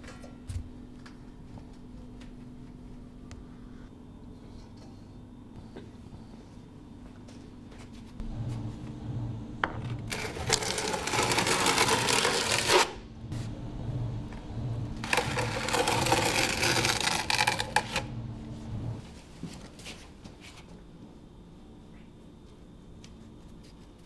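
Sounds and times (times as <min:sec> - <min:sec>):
trowel scraping over mortar: 0:10.1 - 0:12.9.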